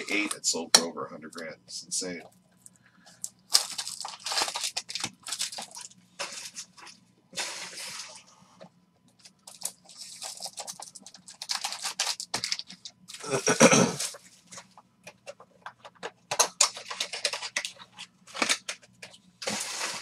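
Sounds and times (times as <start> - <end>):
plastic wrappers crinkling and tearing: 2.6 - 8.2, 9.2 - 14.6, 15.2 - 20.0.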